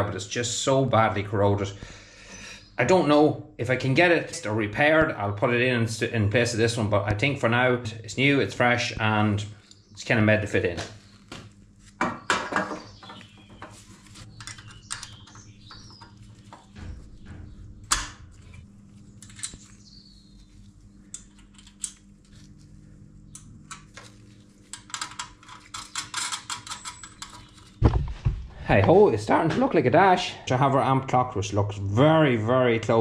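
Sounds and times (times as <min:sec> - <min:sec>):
small metal parts clicking: 0:21.0 - 0:22.4, 0:24.7 - 0:27.8.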